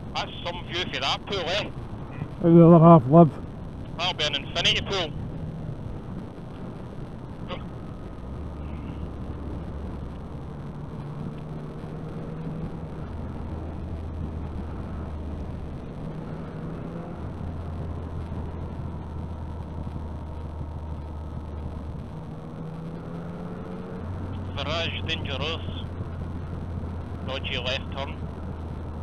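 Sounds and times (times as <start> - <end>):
wind and road noise: 0.0 - 29.0
motorcycle engine revving: 7.4 - 29.0.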